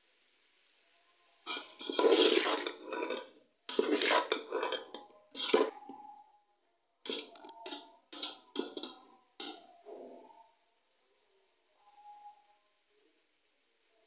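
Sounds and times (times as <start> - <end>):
metal spoon scraping a pot: 1.5 - 6.3, 7.0 - 10.3.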